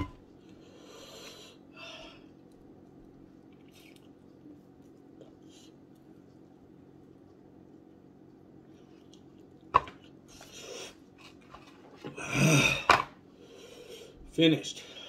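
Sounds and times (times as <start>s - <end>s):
man groaning breathily: 12.2s - 12.9s.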